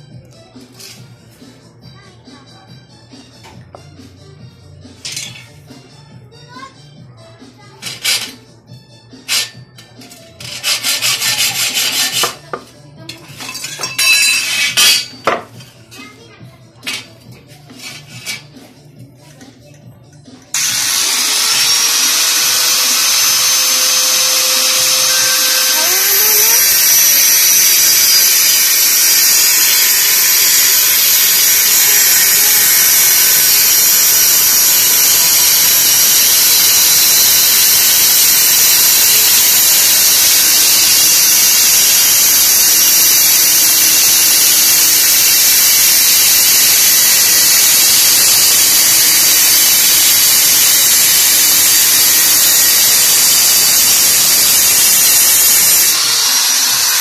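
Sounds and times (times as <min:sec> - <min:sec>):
angle grinder cutting steel: 0:09.2 - 0:15.4, 0:17.7 - 0:18.5, 0:20.5 - 0:57.0.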